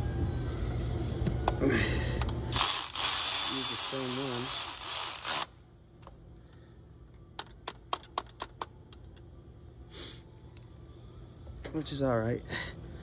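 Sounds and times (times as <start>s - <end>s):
ratchet clicking: 2.5s - 5.6s.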